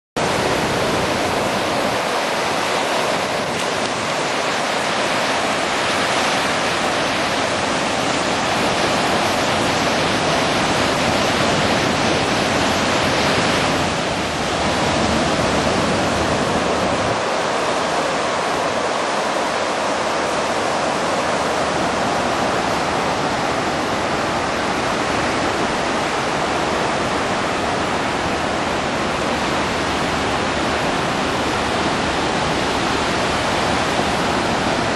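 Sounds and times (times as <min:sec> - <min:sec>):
ocean surf rushing: 0:00.2 - 0:34.9
wind on microphone: 0:00.2 - 0:34.9.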